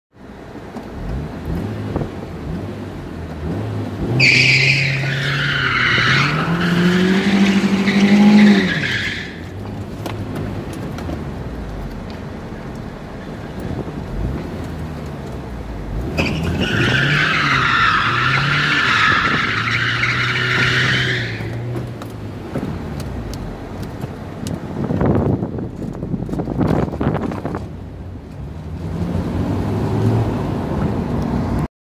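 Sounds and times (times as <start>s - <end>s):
car tires squealing on asphalt: 4.0s - 9.8s, 16.0s - 22.1s.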